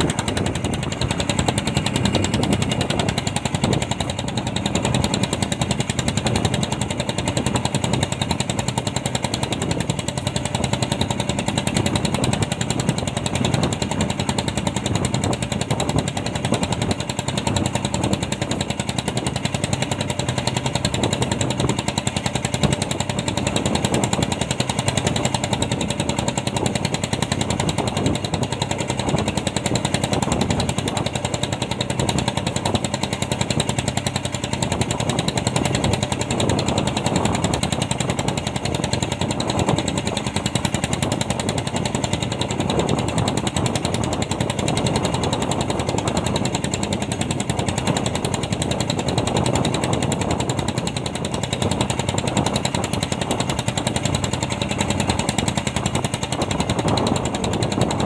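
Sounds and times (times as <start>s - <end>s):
boat engine pulsing: 0.0s - 58.0s.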